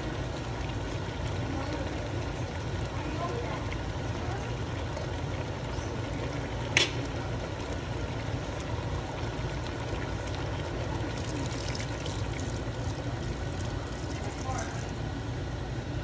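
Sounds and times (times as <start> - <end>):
steady low hum: 0.0 - 16.0
vinegar poured into hot pot: 9.5 - 15.1.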